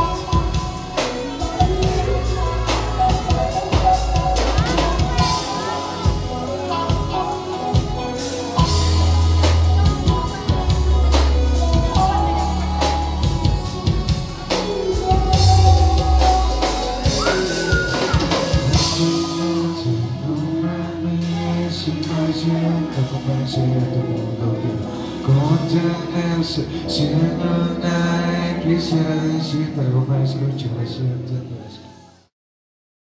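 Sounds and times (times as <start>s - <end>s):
drum kit: 0.0s - 29.3s
deep bass notes: 0.0s - 31.5s
electric guitar lead notes: 0.0s - 31.8s.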